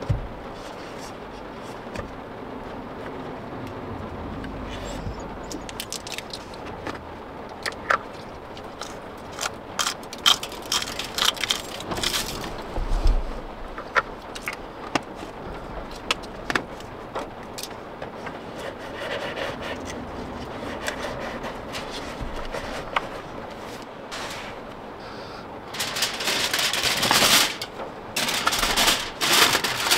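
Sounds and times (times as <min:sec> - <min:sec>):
steady background hiss: 0:00.0 - 0:29.9
small containers clattering: 0:25.7 - 0:29.9.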